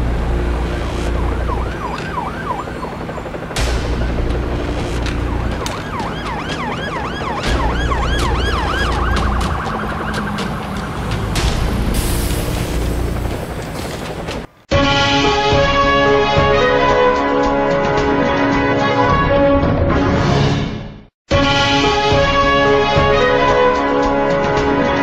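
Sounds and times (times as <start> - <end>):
emergency sirens yelping: 0.0 - 12.0.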